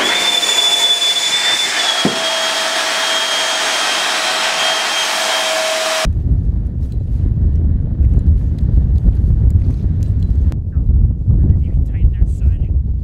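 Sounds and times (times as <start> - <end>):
electric fan whining: 0.0 - 6.1.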